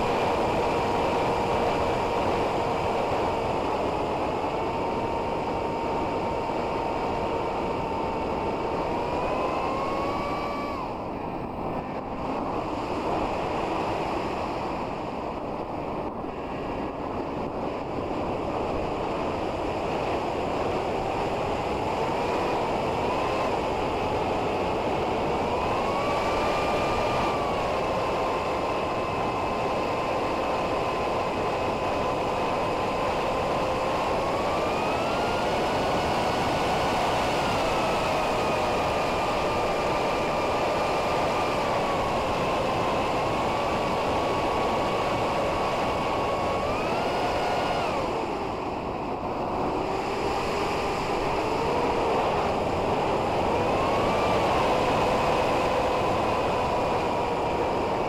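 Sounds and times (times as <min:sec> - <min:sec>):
electric motor and propeller whining: 0:00.0 - 0:58.0
heavy wind rush: 0:00.0 - 0:58.0.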